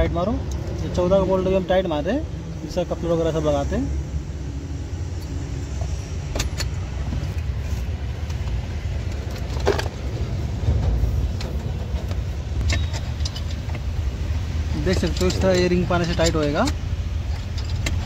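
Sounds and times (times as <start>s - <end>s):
low rumble: 3.7s - 16.0s
spanner clicking on bolts: 5.1s - 7.6s, 10.8s - 18.0s.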